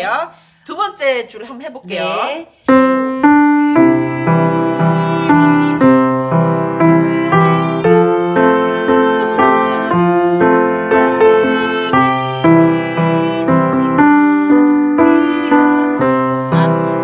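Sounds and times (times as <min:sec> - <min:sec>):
piano playing hymn tune: 0:02.7 - 0:17.0.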